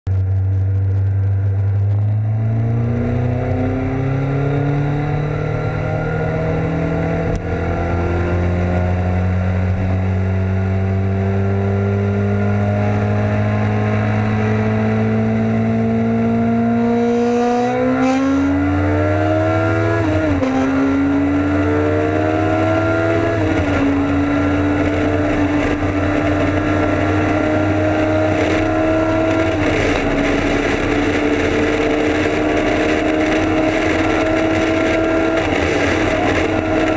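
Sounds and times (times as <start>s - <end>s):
motorcycle engine accelerating: 0.1s - 36.9s
wind buffeting microphone: 19.5s - 36.9s.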